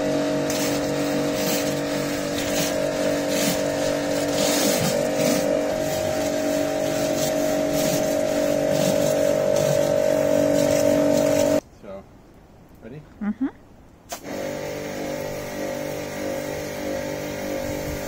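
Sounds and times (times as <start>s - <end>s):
pressure washer motor humming: 0.0s - 11.6s, 14.1s - 18.0s
water spray hissing: 0.4s - 11.6s.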